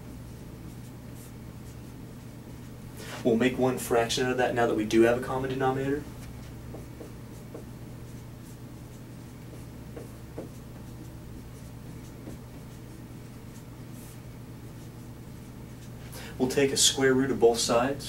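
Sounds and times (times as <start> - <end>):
low room hum: 0.0 - 18.0
marker writing on whiteboard: 0.3 - 2.7, 6.2 - 16.0.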